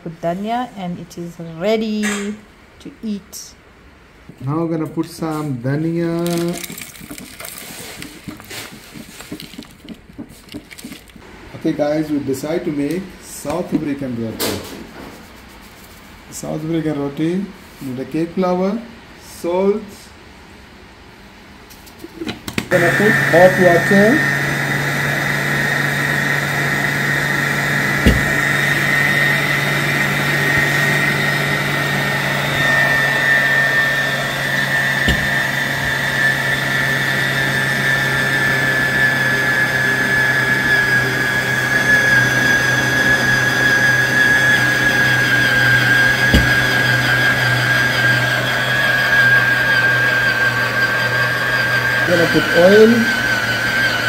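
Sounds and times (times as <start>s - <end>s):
stand mixer motor whining: 6.3s - 11.2s, 22.6s - 54.0s
sharp knocks: 28.0s - 28.9s, 35.0s - 36.0s, 46.3s - 47.0s.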